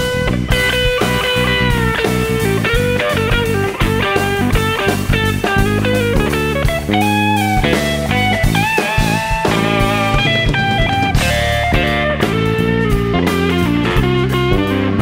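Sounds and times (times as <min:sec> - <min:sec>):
distorted electric guitar lead: 0:00.0 - 0:15.0
drum kit playing: 0:00.0 - 0:15.0
electric bass: 0:00.0 - 0:15.0.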